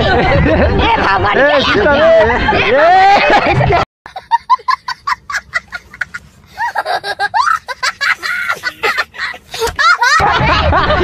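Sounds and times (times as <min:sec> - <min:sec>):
child laughing: 0:04.1 - 0:11.0.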